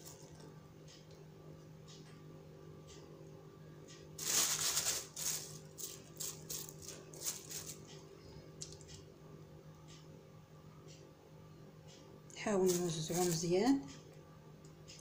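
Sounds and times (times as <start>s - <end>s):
faint steady hum: 0.0s - 15.0s
dry rustling and shaking: 4.2s - 7.9s, 12.5s - 13.6s.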